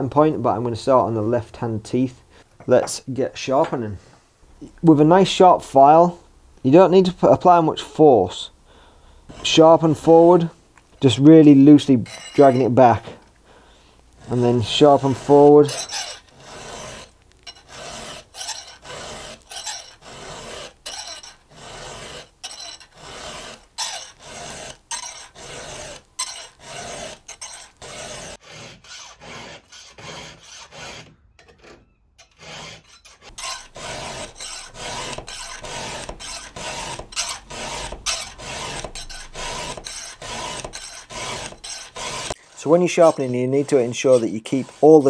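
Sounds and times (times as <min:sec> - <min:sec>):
file rasping on chainsaw teeth: 0:11.7 - 0:13.0, 0:14.2 - 0:31.1, 0:32.2 - 0:45.0.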